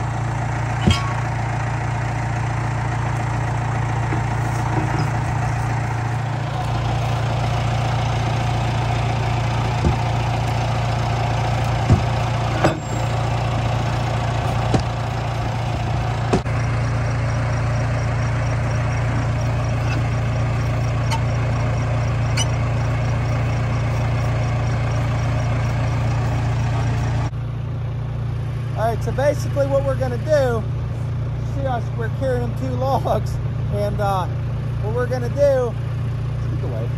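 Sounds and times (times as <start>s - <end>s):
loader engine idling: 0.0s - 36.9s
metal clanks of steel tines: 0.6s - 1.5s, 11.7s - 13.4s, 18.8s - 24.3s.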